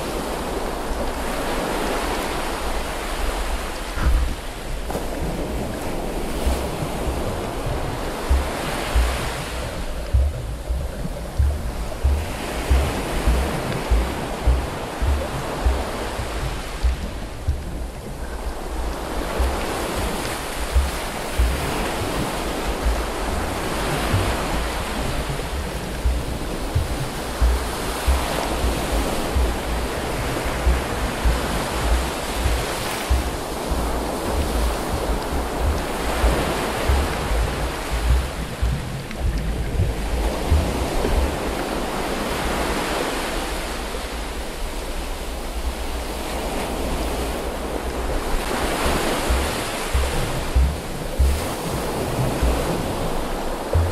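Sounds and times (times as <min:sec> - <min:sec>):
low thumps: 0:04.0 - 0:42.4, 0:48.1 - 0:53.9
water rushing underwater: 0:04.0 - 0:42.8, 0:47.0 - 0:53.9.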